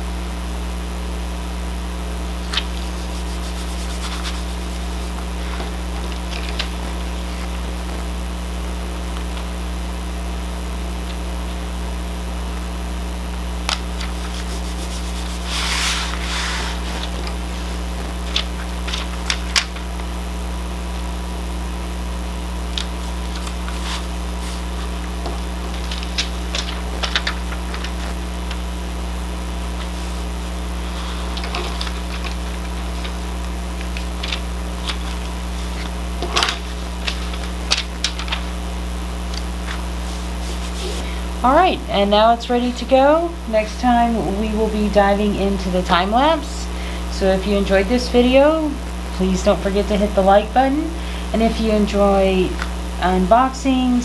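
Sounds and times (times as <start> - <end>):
steady low hum: 0.0 - 54.0
paper and plastic rustling: 2.4 - 7.7, 13.7 - 20.0, 22.8 - 28.7, 29.8 - 38.6, 39.3 - 41.2.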